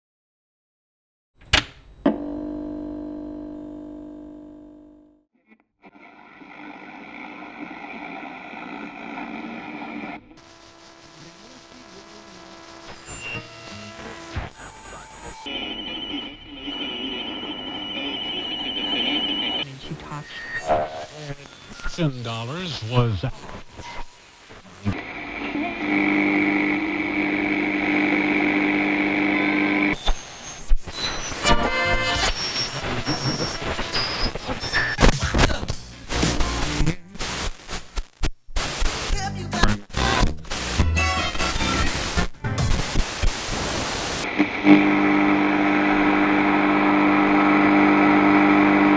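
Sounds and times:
faint held tones: 0:01.8 - 0:05.2
struck chord ringing: 0:01.9 - 0:05.2.

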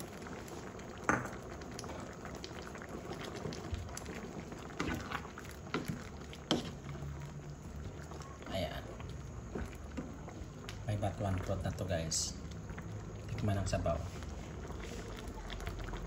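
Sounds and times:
soup bubbling in a pan: 0:00.0 - 0:16.0
wooden spatula knocking and stirring: 0:04.8 - 0:07.0.

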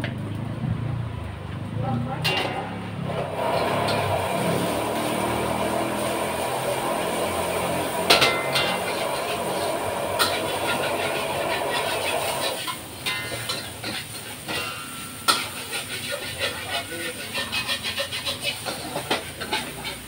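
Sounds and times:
metal spatula clanking on wok: 0:02.2 - 0:02.8, 0:08.0 - 0:20.0
rice sizzling in a wok: 0:03.0 - 0:20.0.

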